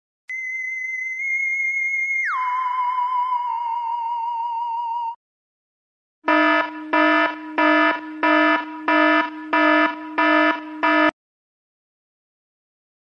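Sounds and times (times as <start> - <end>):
pulsing electronic alarm buzzer: 6.3 - 11.2.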